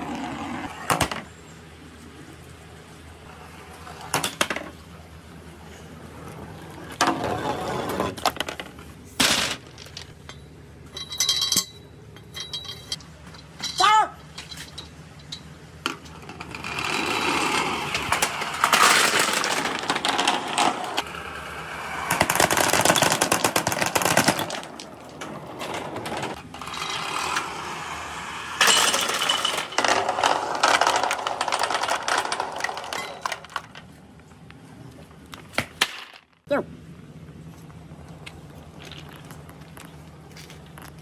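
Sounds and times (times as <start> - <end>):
balls rattling down plastic tube: 28.6 - 33.8.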